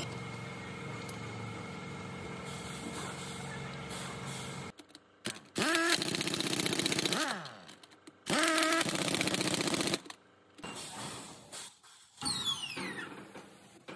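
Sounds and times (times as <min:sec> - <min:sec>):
impact wrench rattling and whining: 0:04.6 - 0:11.4.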